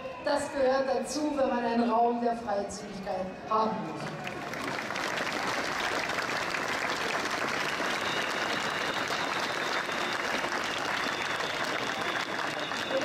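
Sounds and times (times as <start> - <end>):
crowd applauding: 4.0 - 13.0.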